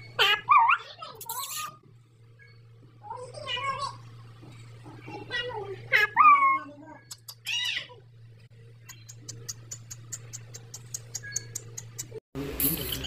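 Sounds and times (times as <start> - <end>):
parakeet calling: 0.0 - 1.8, 3.5 - 8.1, 8.8 - 12.2.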